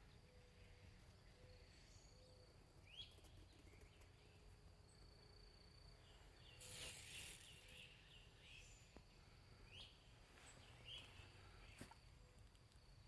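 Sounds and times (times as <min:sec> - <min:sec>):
soft bird chirps: 0:00.0 - 0:13.0.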